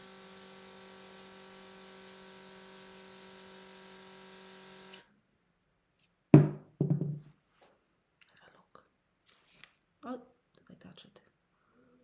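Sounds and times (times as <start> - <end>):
airbrush compressor hum: 0.0 - 5.1.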